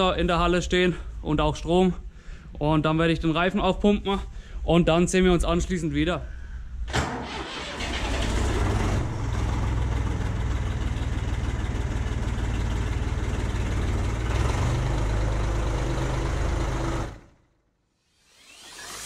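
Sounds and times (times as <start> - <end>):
diesel tractor engine starting: 6.9 - 17.5.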